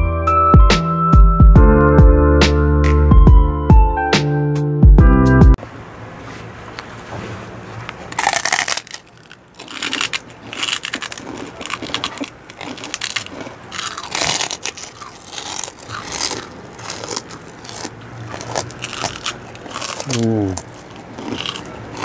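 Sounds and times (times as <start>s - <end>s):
people crunching crispy food: 8.0s - 22.0s.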